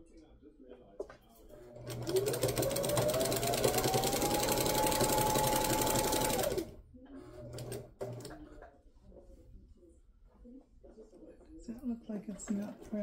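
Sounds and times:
sewing machine motor whine: 1.7s - 6.7s.

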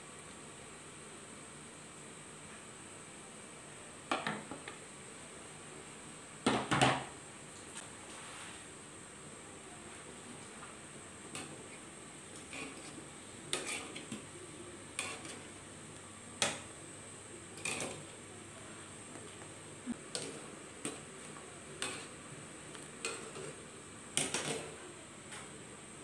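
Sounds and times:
water boiling hiss: 7.1s - 26.0s.

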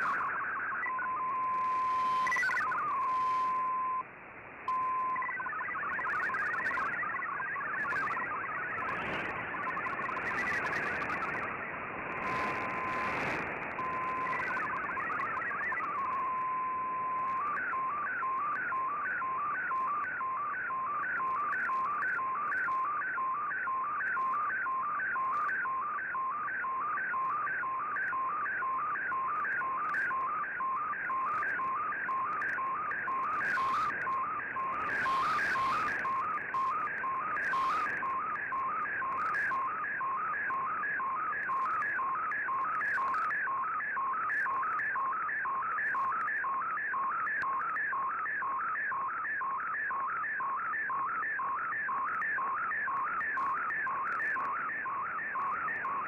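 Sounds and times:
warbling radio tones: 0.0s - 4.0s, 4.7s - 56.0s
receiver hiss: 0.0s - 23.0s, 31.2s - 43.5s.

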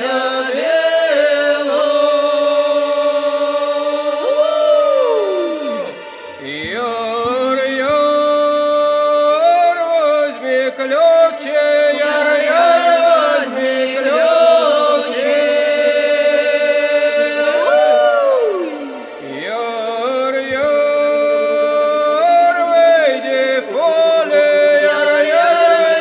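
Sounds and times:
slow folk singing: 0.0s - 26.0s.

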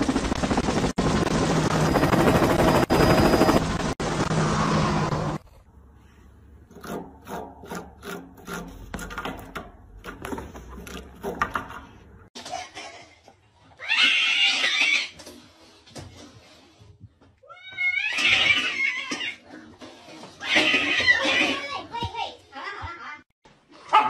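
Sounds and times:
cat scratching rope post: 6.7s - 11.6s.

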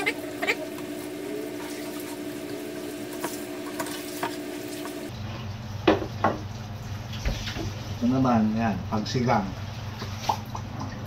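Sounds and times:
faint hum: 0.0s - 5.8s.

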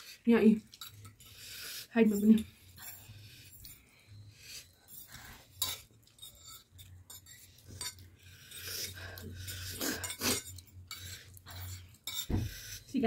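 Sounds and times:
forks clinking on plates: 0.7s - 1.3s, 5.0s - 12.4s.

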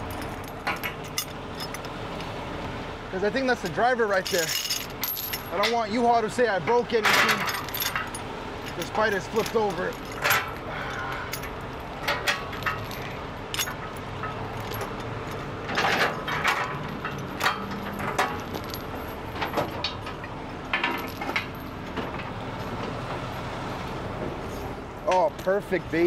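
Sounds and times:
steel chain clinking and rattling: 0.0s - 1.9s, 4.0s - 22.8s.

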